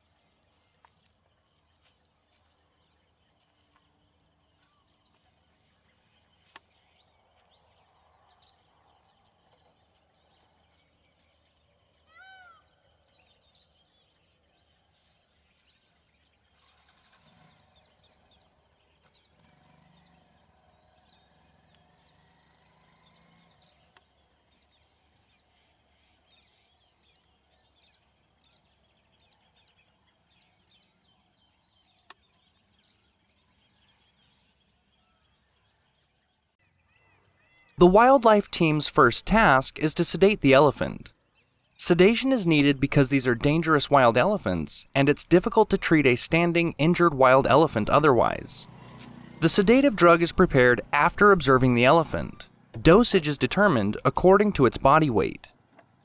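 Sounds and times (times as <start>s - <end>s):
bird call: 12.0s - 12.8s.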